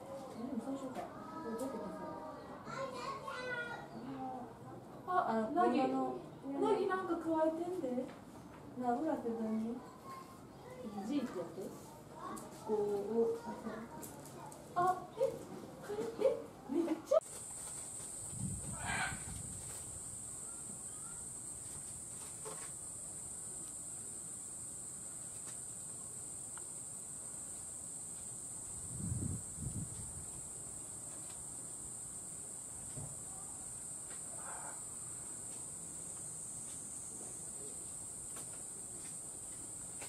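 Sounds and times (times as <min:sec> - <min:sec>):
high-pitched insect drone: 0:17.2 - 0:40.0.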